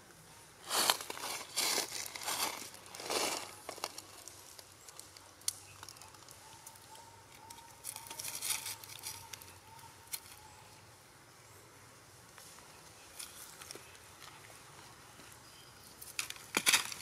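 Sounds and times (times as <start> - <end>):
dry leaves rustling: 0.6 - 6.4, 7.4 - 10.6, 16.0 - 17.0.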